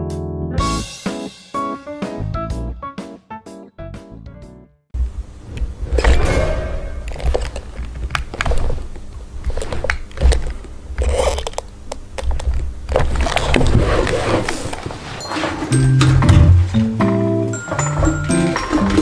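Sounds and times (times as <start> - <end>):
cloth rustling: 12.9 - 15.8.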